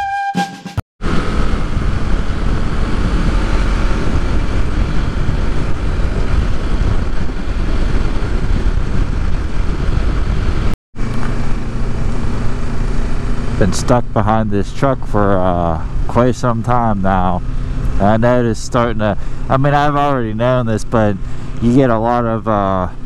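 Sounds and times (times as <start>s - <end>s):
wind rushing over microphone: 1.0s - 14.5s
motorcycle engine: 1.0s - 23.0s
road noise: 1.0s - 23.0s.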